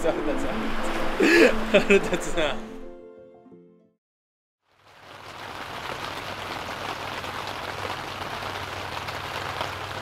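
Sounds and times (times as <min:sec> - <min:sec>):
heavy rain pattering on tent: 0:04.6 - 0:10.0.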